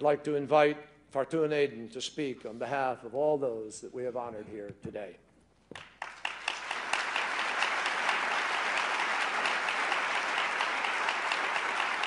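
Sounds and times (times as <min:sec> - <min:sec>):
audience applauding: 0:05.8 - 0:12.0.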